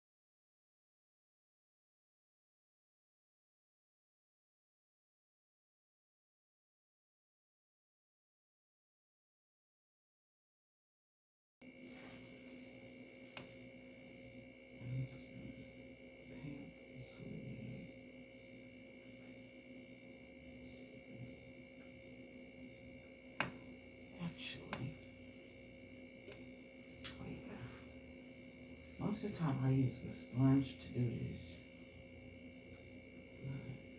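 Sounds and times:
electrical hum with high whine: 11.6 - 33.9.

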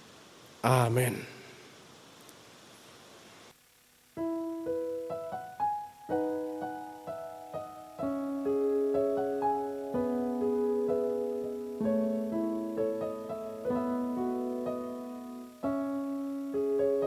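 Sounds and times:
slow solo piano music: 4.2 - 17.0.

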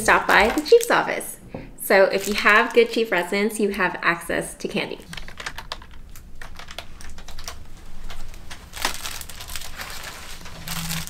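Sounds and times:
crinkling plastic wrappers: 2.0 - 3.3, 5.1 - 11.0.

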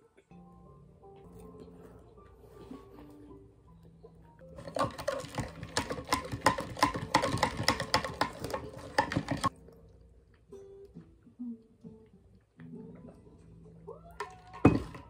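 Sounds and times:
metal straw stirring: 4.6 - 9.6.

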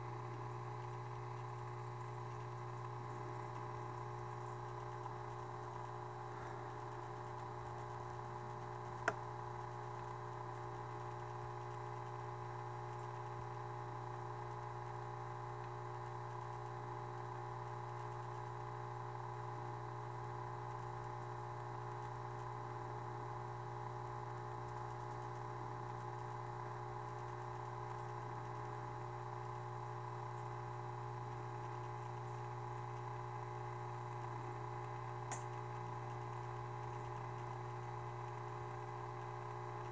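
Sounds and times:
aquarium pump hum: 0.0 - 39.9
sharp click: 35.3 - 35.6.

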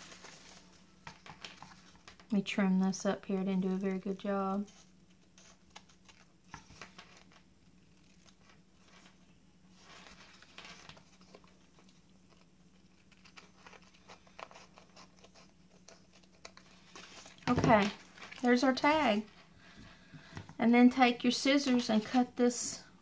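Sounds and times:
paper rustling: 0.0 - 2.2, 4.5 - 19.4
faint steady hum: 0.0 - 23.0
scissors snipping paper: 12.3 - 16.6.

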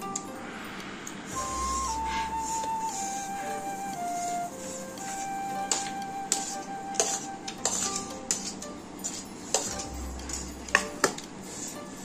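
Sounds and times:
soft background music: 0.0 - 12.0
metal spoon clinking dishes: 5.7 - 11.9.

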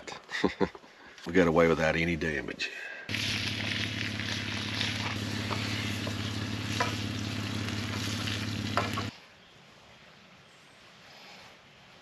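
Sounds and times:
bacon sizzling in a frying pan: 3.1 - 9.1.

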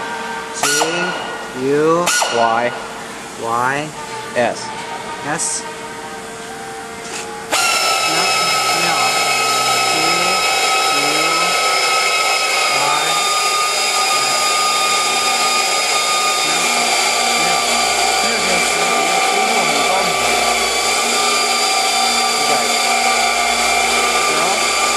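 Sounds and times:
power tool whining: 0.0 - 24.9.

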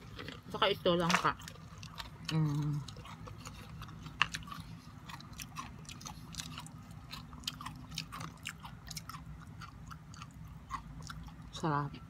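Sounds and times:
person chewing crunchy chip: 0.0 - 11.7.

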